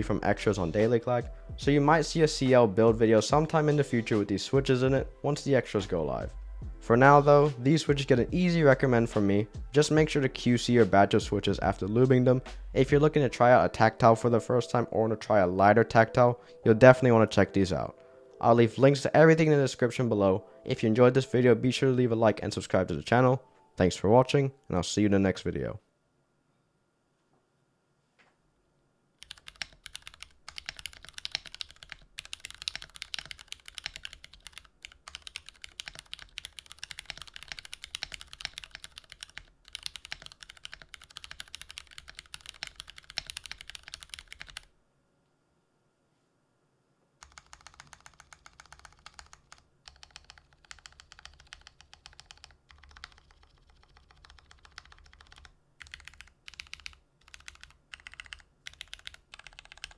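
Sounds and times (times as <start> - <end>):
mechanical keyboard typing: 29.2 - 44.7, 47.2 - 59.9.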